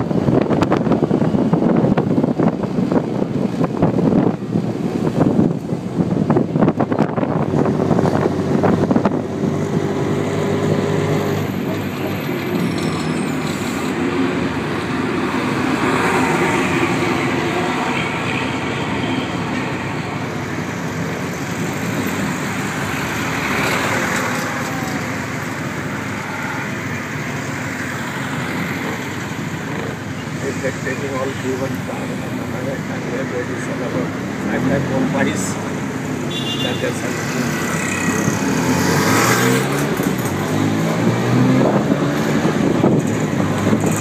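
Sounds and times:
wind buffeting microphone: 0.0 - 12.6, 39.6 - 44.0
street traffic: 0.0 - 44.0.

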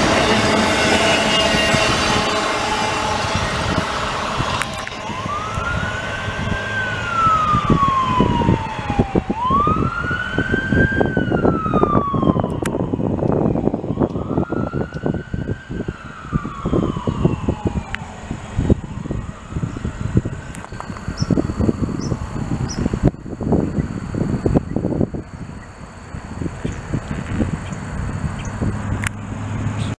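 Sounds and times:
freight train rumbling and clanking: 0.0 - 5.3
siren wailing: 0.0 - 27.5.

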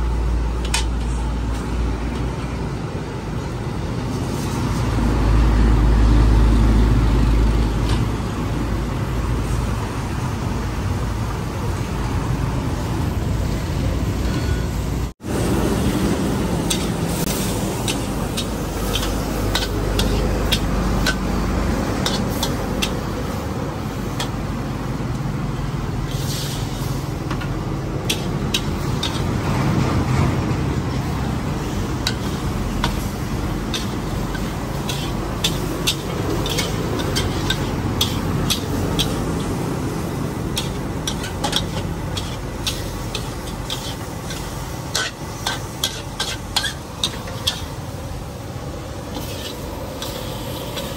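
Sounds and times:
food sizzling: 15.2 - 50.9
metal spatula scraping wok: 16.6 - 24.4, 26.0 - 30.0, 30.7 - 47.8, 49.0 - 50.9.

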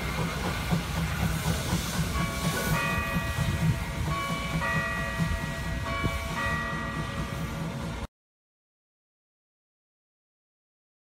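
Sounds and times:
steam locomotive rumbling: 0.0 - 8.1.

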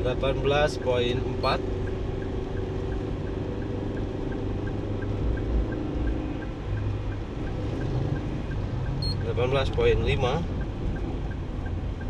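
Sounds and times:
car engine and road hum: 0.0 - 12.0
faint regular tick: 1.8 - 9.0.

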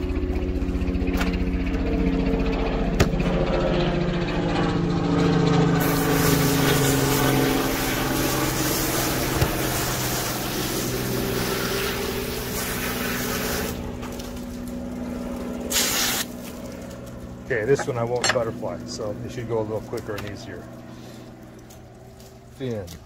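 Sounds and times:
motor humming: 0.0 - 22.6
hose water spray hissing: 5.8 - 14.2, 15.7 - 16.6.

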